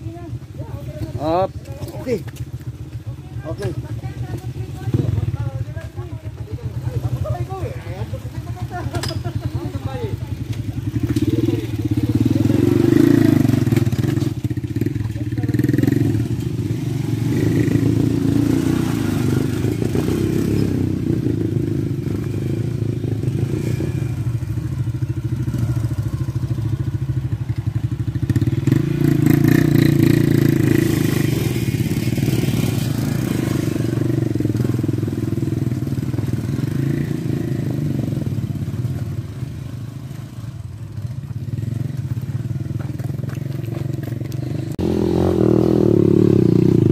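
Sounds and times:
motorcycle engines labouring: 0:00.0 - 0:46.9.

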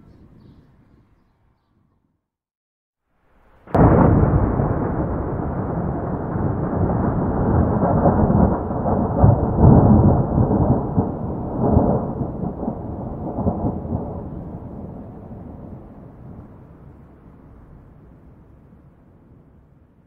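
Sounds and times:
thunder rumbling: 0:03.5 - 0:19.2.

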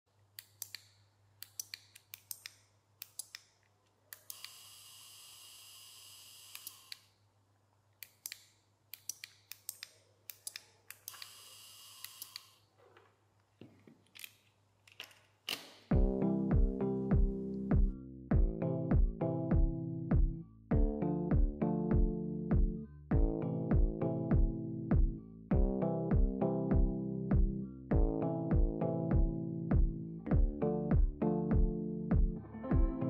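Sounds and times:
small motor whirring: 0:04.3 - 0:07.0.

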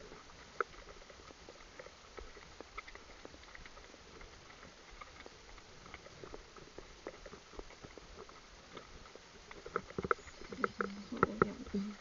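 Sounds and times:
hooves on gravel: 0:00.0 - 0:12.0.

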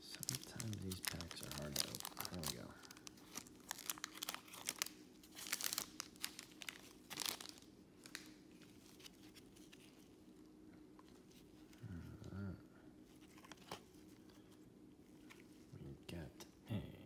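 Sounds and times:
foil wrapper crinkling: 0:00.0 - 0:10.1
cards rustling: 0:00.0 - 0:10.2, 0:13.1 - 0:15.7.

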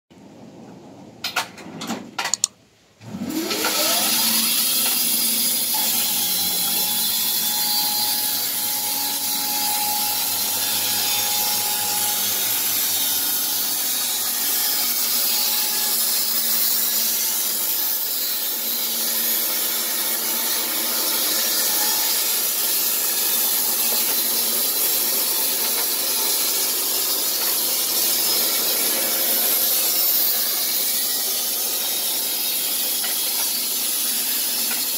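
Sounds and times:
clicks: 0:02.2 - 0:02.6
band saw cutting log: 0:03.0 - 0:34.9
sawmill motor whining: 0:03.0 - 0:34.9.

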